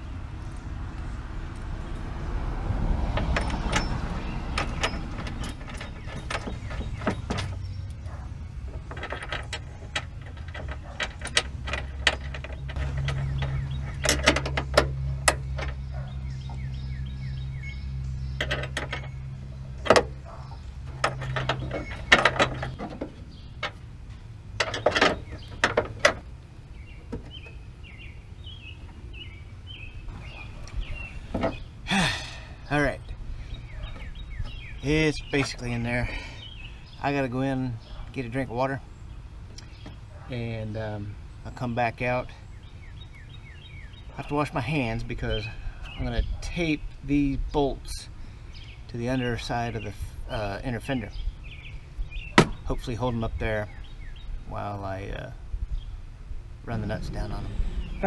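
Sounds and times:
metal parts clinking and knocking: 3.2s - 7.7s, 8.7s - 15.8s, 18.4s - 19.2s, 20.9s - 23.8s, 24.6s - 26.2s.

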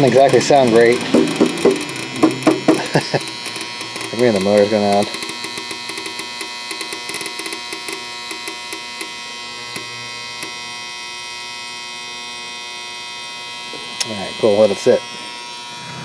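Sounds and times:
person speaking: 0.0s - 7.6s
crackling ticks: 0.0s - 10.6s
ultrasonic cleaner humming: 0.0s - 16.0s.

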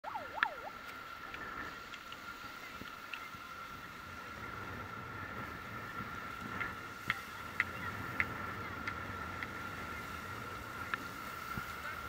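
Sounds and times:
high-pitched tone: 0.0s - 0.8s
warbling sound: 0.0s - 0.8s.

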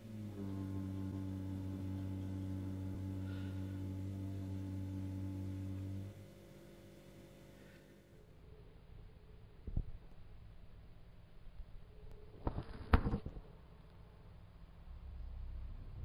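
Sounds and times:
steady low hum: 0.0s - 12.4s.

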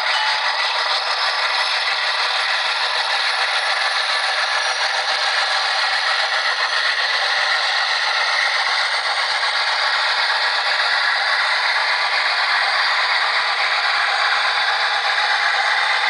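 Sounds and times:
diesel engine sound through small speaker: 0.0s - 16.0s.

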